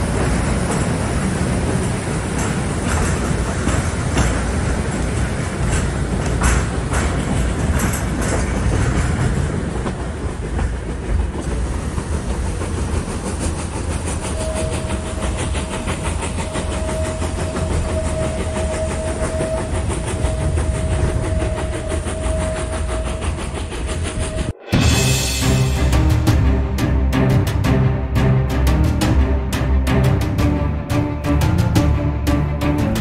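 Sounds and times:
train rumble and rushing: 0:00.0 - 0:33.0
steady high tone: 0:24.2 - 0:33.0.

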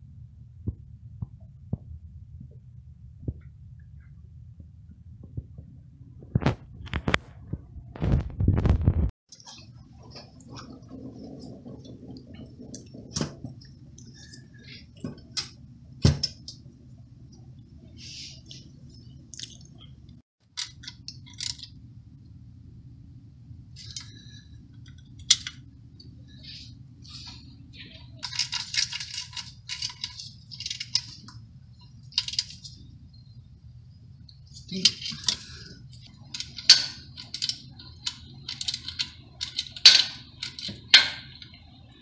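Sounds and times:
low hum: 0:00.0 - 0:42.0
metallic clinks of engine parts: 0:28.2 - 0:32.8.

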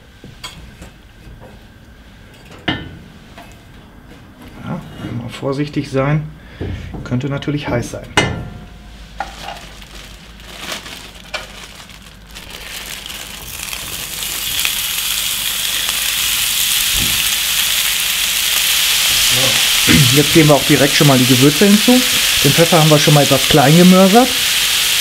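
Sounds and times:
meat sizzling in a skillet: 0:12.5 - 0:25.0.

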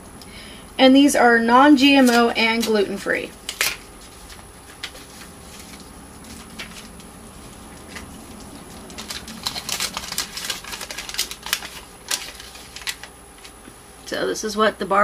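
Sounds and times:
wrapper and foil crinkling: 0:01.8 - 0:13.6.

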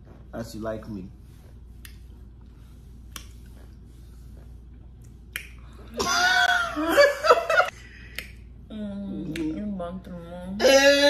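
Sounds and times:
finger snaps: 0:03.1 - 0:03.4, 0:05.0 - 0:05.8, 0:08.0 - 0:08.5, 0:09.2 - 0:09.6.

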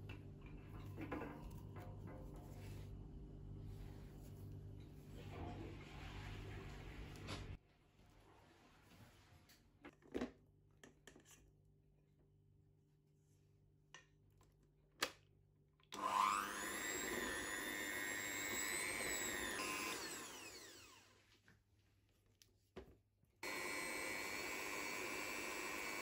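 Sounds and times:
electric mixer whining: 0:16.0 - 0:21.1, 0:23.4 - 0:26.0.

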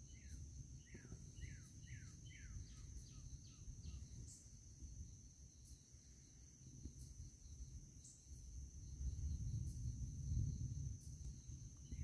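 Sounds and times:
insects droning: 0:00.0 - 0:12.0
bird whistling song: 0:00.1 - 0:04.4.

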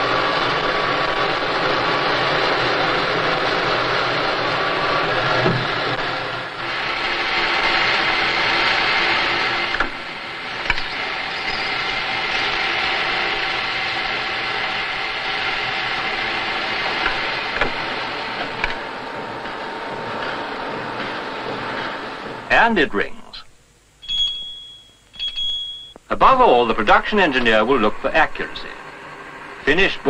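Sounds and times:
lathe cutting steel: 0:00.0 - 0:22.5
faint humming tones: 0:00.0 - 0:30.0.

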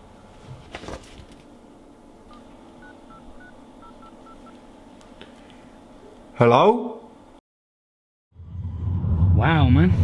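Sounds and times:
phone keypad beeps: 0:02.3 - 0:04.6.

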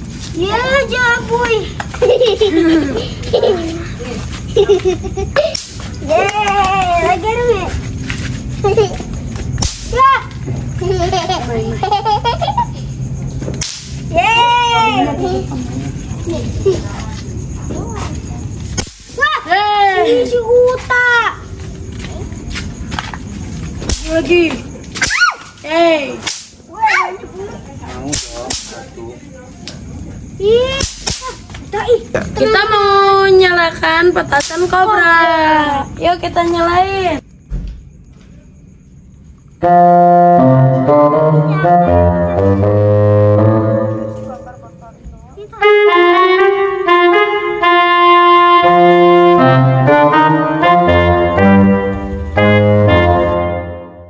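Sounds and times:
children squealing: 0:25.0 - 0:25.6
instrumental background music: 0:39.6 - 0:44.8, 0:45.5 - 0:54.0.

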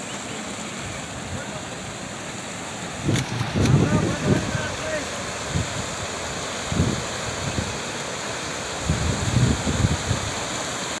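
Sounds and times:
floodwater rushing: 0:00.0 - 0:11.0
wind rumbling on microphone: 0:02.9 - 0:07.9, 0:08.7 - 0:10.5.

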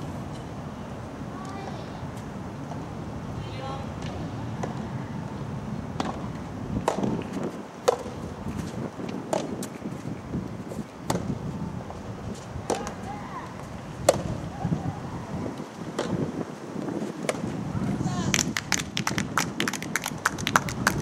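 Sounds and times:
rackets hitting tennis ball: 0:06.0 - 0:10.1, 0:11.0 - 0:11.4, 0:12.3 - 0:14.4, 0:15.8 - 0:16.2.

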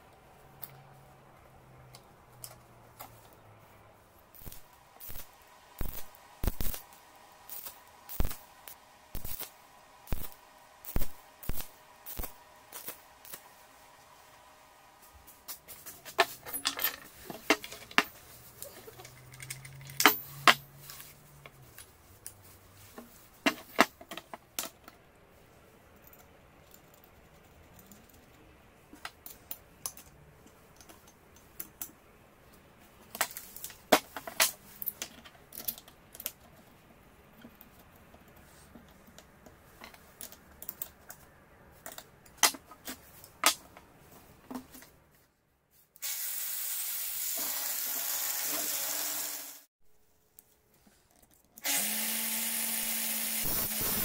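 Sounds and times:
steel parts and wrench clinking: 0:15.7 - 0:21.1.

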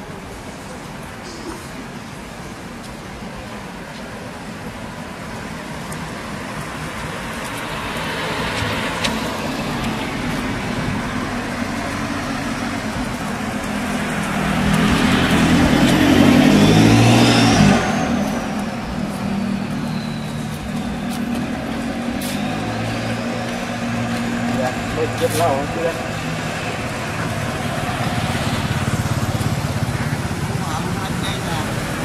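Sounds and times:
vehicle engine passing: 0:07.2 - 0:32.0.

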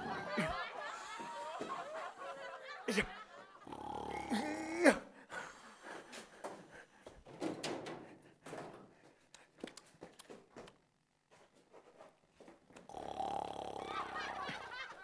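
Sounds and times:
rustling of someone moving: 0:08.2 - 0:12.8.

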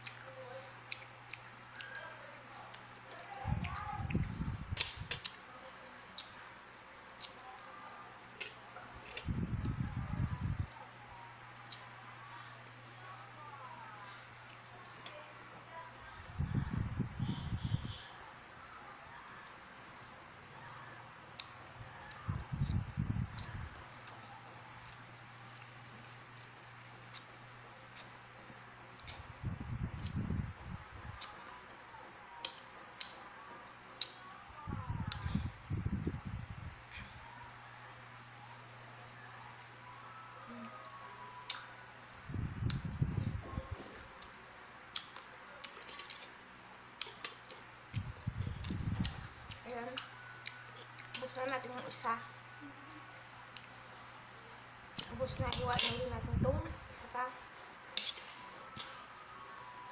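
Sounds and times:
faint steady hum: 0:00.0 - 0:59.9
lip smacks and mouth clicks: 0:00.8 - 0:02.0, 0:06.1 - 0:06.4, 0:32.4 - 0:33.2, 0:44.2 - 0:46.4.

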